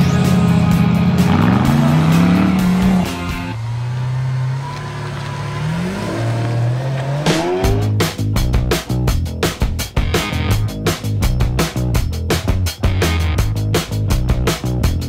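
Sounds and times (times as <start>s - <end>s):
rock music with heavy drums: 0.0s - 3.6s, 7.1s - 15.0s
sports car engine accelerating: 0.0s - 8.5s.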